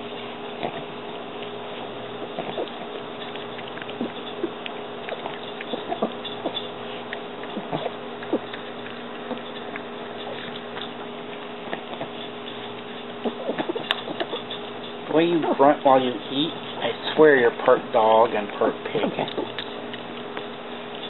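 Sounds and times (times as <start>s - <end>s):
dog eating and grunting: 0.0s - 21.0s
steady background hum: 0.0s - 21.0s.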